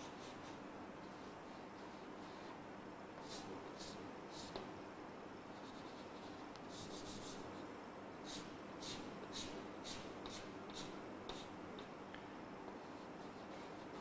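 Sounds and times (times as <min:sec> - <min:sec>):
chalk scratching on blackboard: 0:03.2 - 0:04.6, 0:05.5 - 0:07.6, 0:08.3 - 0:11.5, 0:12.8 - 0:14.0.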